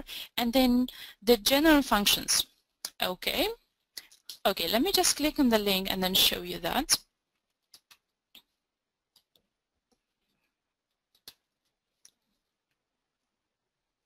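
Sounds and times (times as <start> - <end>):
computer mouse clicks: 7.6 - 8.5.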